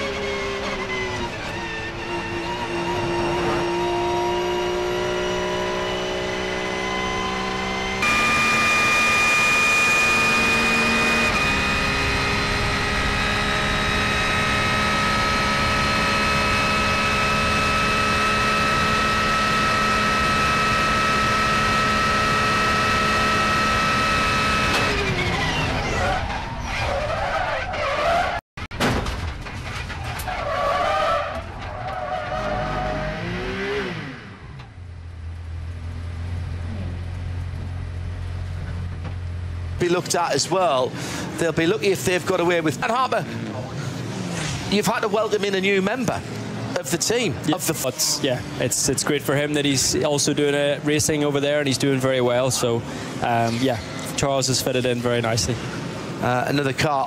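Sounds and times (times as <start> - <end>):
racing engine revving: 0.0 - 28.4, 31.3 - 34.8.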